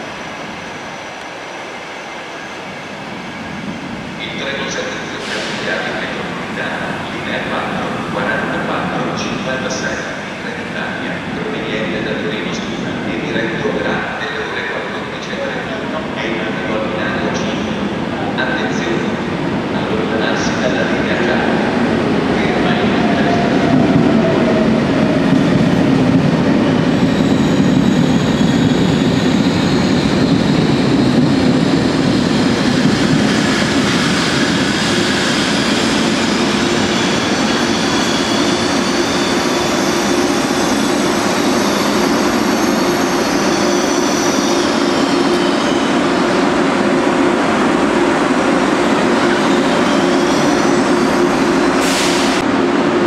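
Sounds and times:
train wheels squealing: 0.0 - 6.9, 26.7 - 46.5, 48.9 - 52.4.

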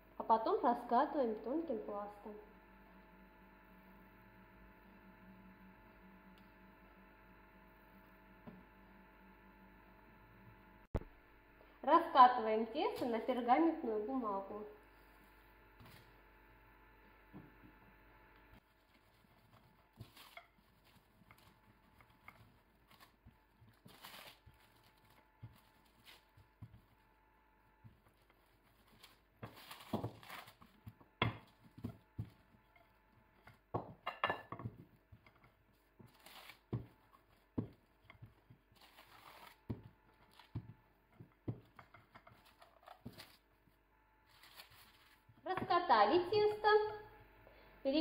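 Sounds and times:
paper rustling: 18.6 - 26.9, 28.0 - 30.8, 35.7 - 37.5, 38.6 - 40.6, 42.3 - 43.5, 44.2 - 45.3
rolling pin rolling dough: 18.6 - 27.0, 27.8 - 43.6.

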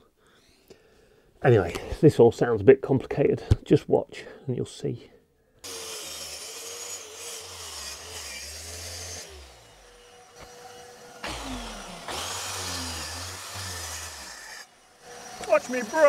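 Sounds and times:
track saw cutting plywood: 5.6 - 16.0.

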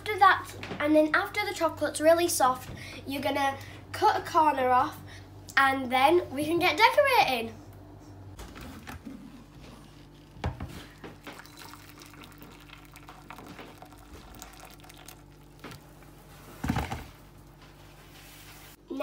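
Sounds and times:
boiling water pouring into bowl: 11.1 - 16.1.

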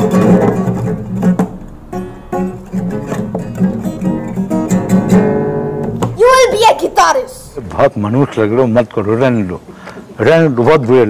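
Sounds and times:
acoustic guitar strumming: 0.0 - 7.6.

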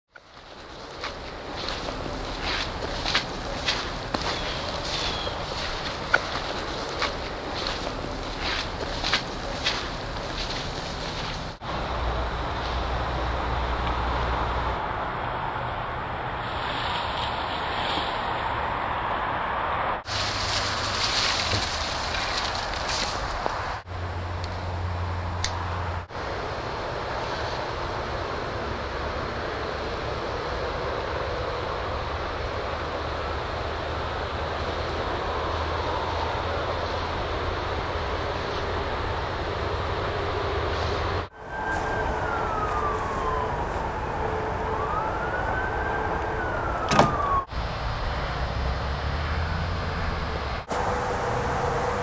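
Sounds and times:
low steady hum: 0.2 - 13.9
emergency siren wailing: 0.6 - 11.6, 27.9 - 52.0.

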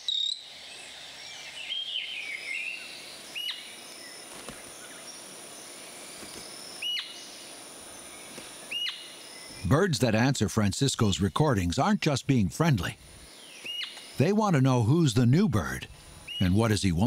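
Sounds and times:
forest hiss: 0.0 - 17.0
high insect whine: 0.0 - 17.0
bird twittering: 1.5 - 5.1, 6.8 - 7.3, 8.7 - 9.7, 13.2 - 14.2, 15.6 - 17.0.

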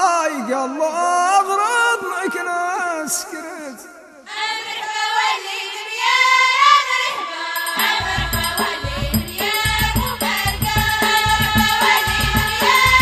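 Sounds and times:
group of voices singing: 3.2 - 13.0
frame drums beating: 7.6 - 13.0.

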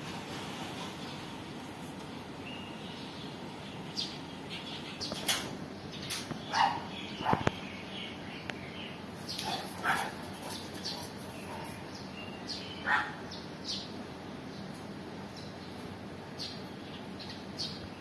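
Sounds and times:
birds chirping: 0.7 - 18.0
dog barking: 6.5 - 7.5, 9.4 - 10.6, 12.8 - 13.2.

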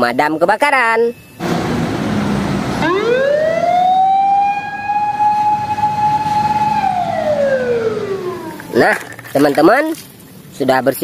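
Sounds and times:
fire engine siren wailing: 1.2 - 9.2.

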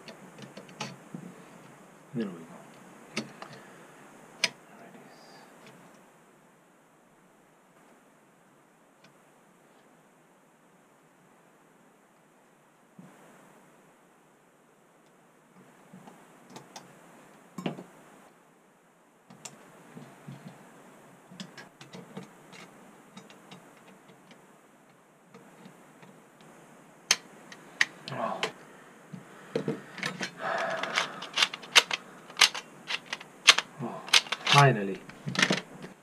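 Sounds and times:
small metal parts clicking: 29.9 - 36.0.

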